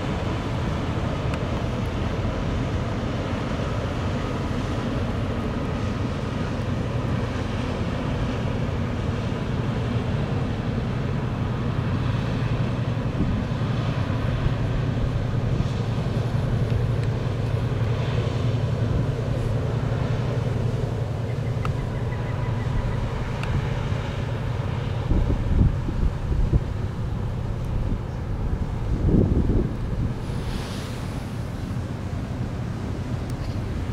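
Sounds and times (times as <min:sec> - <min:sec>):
boat engine rumbling: 0:00.0 - 0:33.9
wind buffeting microphone: 0:12.3 - 0:33.9
bow wave hissing: 0:29.7 - 0:33.9.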